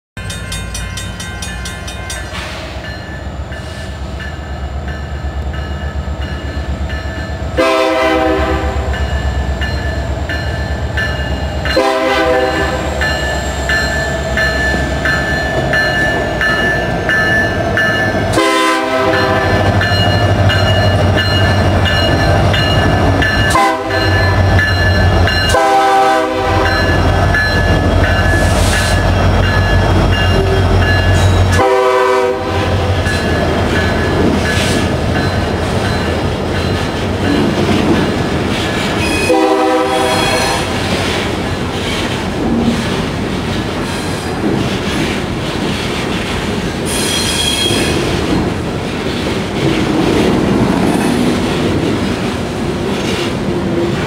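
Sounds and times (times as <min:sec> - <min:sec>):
crossing bell ringing: 0:00.2 - 0:40.8
train air horn blasts: 0:07.6 - 0:09.0, 0:11.7 - 0:13.0, 0:18.3 - 0:19.8, 0:23.5 - 0:24.2, 0:25.5 - 0:27.0, 0:31.5 - 0:33.0, 0:39.0 - 0:40.8.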